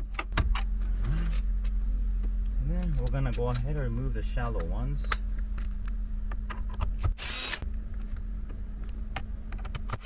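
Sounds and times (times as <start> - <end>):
cordless drill running: 7.2 - 7.6.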